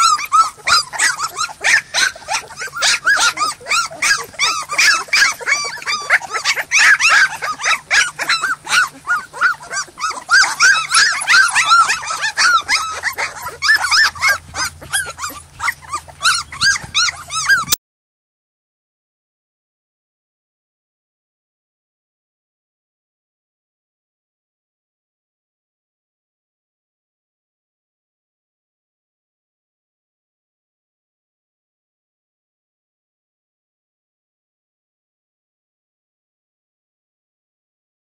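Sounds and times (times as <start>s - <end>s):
puppies whining and crying: 0.0s - 17.8s.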